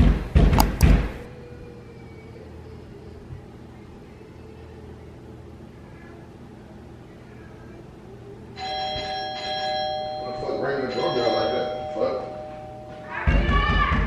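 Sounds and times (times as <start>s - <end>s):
low room hum: 0.0s - 14.0s
doorbell chime: 8.6s - 13.5s.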